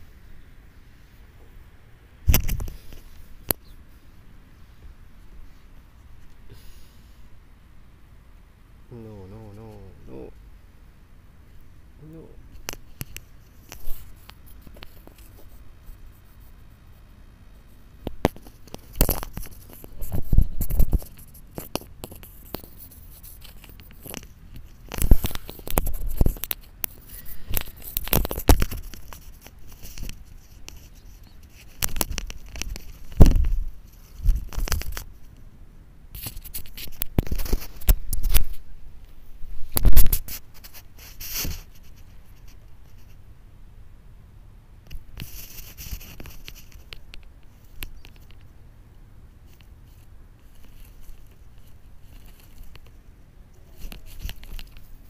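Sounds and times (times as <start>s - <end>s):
cat scraping microphone cable: 18.1s - 35.1s, 36.2s - 38.7s, 39.6s - 43.2s, 44.9s - 48.4s, 53.7s - 55.0s.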